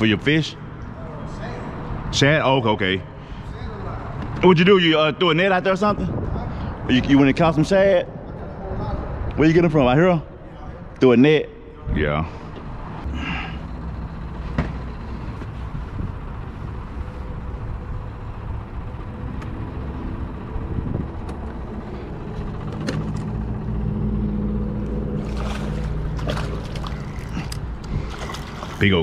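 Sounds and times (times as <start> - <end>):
boat motor humming: 12.6 - 29.0.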